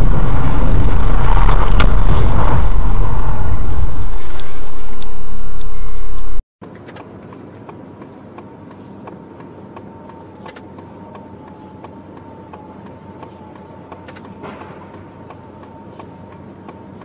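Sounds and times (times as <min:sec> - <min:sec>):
thin steady whine: 0:00.0 - 0:17.0
vehicle low hum: 0:00.0 - 0:17.0.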